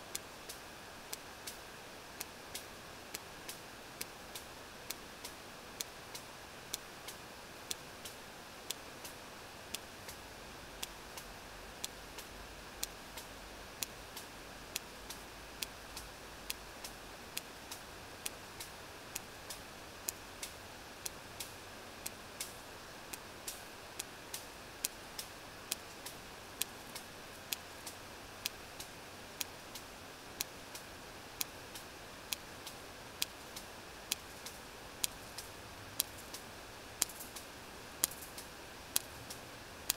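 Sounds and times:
whale echolocation clicks: 0:10.8 - 0:39.9.

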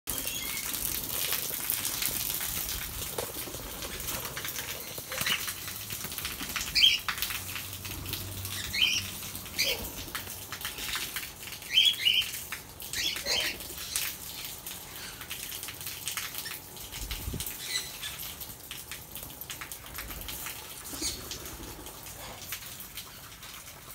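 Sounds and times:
birds flapping wings: 0:00.8 - 0:08.6.

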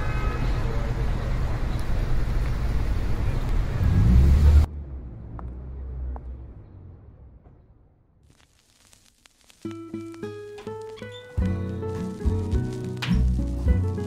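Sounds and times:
road traffic rumble: 0:00.0 - 0:08.2
faint clicks of gramophone record: 0:08.3 - 0:14.0.

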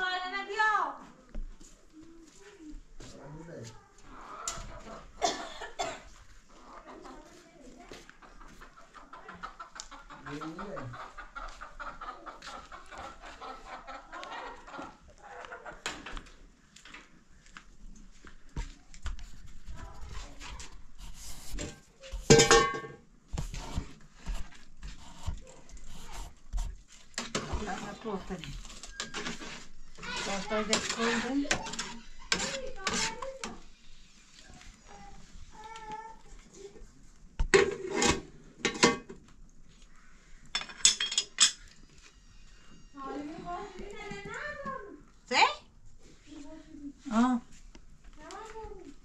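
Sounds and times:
metal pots and lids clanking: 0:22.2 - 0:23.1, 0:28.8 - 0:33.2, 0:37.5 - 0:39.2, 0:40.6 - 0:41.6.

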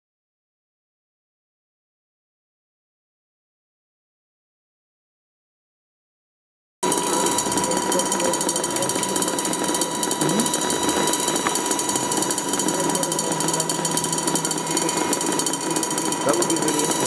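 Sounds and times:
crackling rattling electronic buzz: 0:06.8 - 0:17.0
steady high tone: 0:06.8 - 0:17.0.

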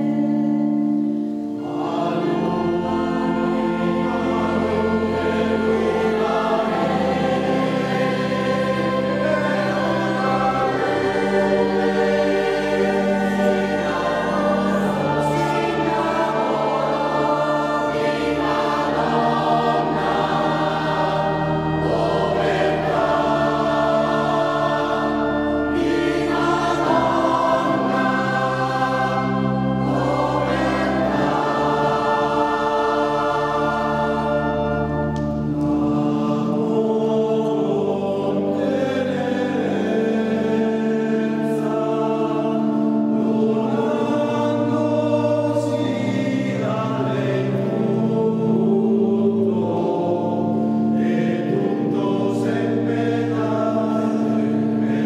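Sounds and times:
mixed choir singing: 0:00.0 - 0:55.0
organ bass notes: 0:00.0 - 0:55.0.

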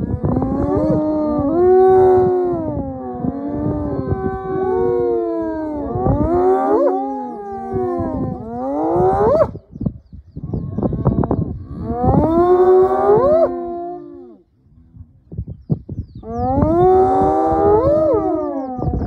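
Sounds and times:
hyenas moaning calls: 0:00.0 - 0:09.4.

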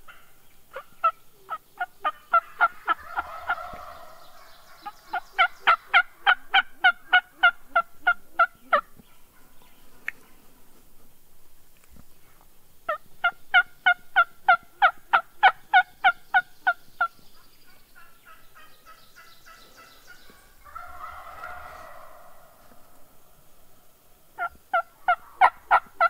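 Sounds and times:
turkey yelps: 0:00.1 - 0:08.8, 0:20.6 - 0:22.8, 0:24.4 - 0:26.0
turkey gobble: 0:00.1 - 0:09.5, 0:12.9 - 0:16.8, 0:18.0 - 0:23.2, 0:24.4 - 0:26.0.

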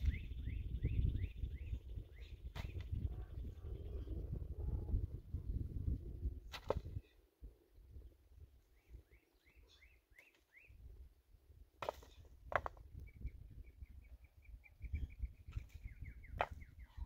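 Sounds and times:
birds chirping: 0:00.0 - 0:04.4, 0:08.0 - 0:11.0, 0:12.9 - 0:17.0.

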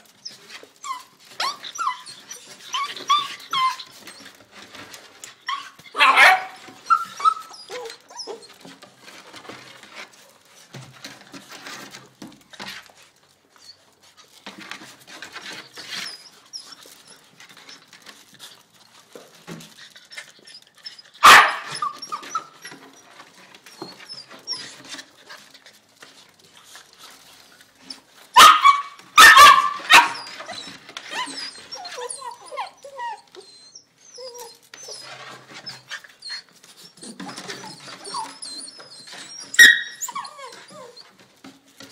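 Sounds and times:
puppies scuffling: 0:00.0 - 0:41.9
puppy whining: 0:00.0 - 0:41.9
puppy barking: 0:05.9 - 0:07.4, 0:21.2 - 0:22.0, 0:28.4 - 0:30.2.

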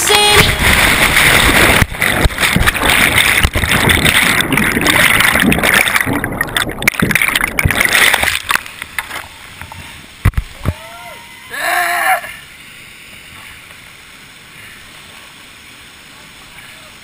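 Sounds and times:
whitewater rushing: 0:00.0 - 0:13.0.

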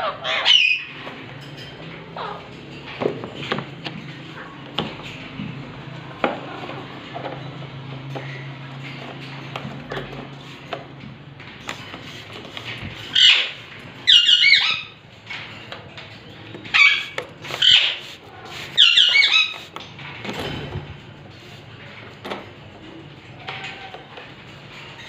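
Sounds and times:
parakeets calling: 0:00.0 - 0:04.6, 0:11.5 - 0:20.0.

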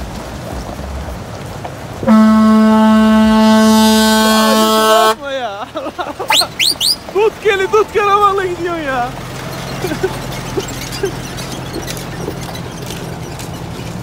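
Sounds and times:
vehicle horn steady low note: 0:02.0 - 0:05.2.

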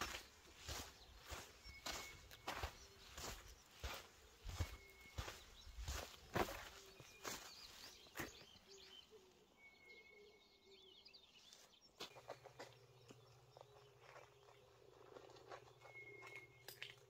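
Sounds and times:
paws crunching on dry straw: 0:00.0 - 0:08.8
small birds chirping: 0:00.0 - 0:17.0.

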